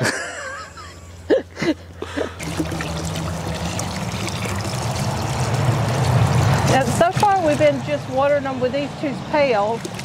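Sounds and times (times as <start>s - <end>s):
hose water running into metal pan: 2.4s - 8.1s.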